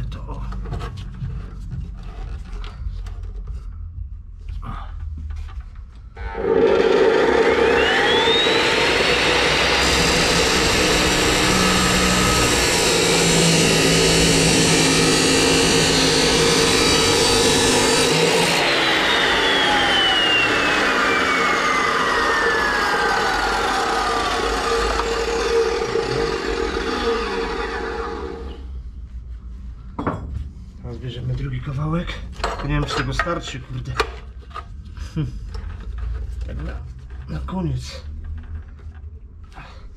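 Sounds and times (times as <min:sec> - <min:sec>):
chop saw motor whine: 0:06.2 - 0:28.7
saw grinding through steel tube: 0:06.2 - 0:28.7.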